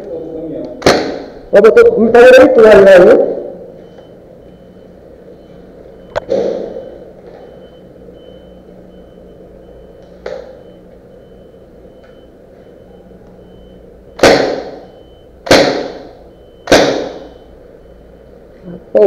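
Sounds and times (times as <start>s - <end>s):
airsoft gun shots: 0.8s - 1.4s, 6.3s - 6.8s, 14.2s - 14.8s, 15.4s - 17.3s.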